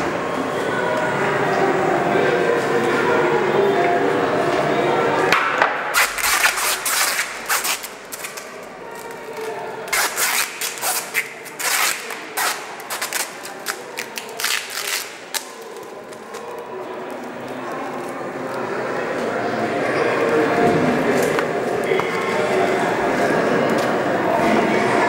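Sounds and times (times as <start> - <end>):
adhesive tape ripping: 5.9 - 16.6.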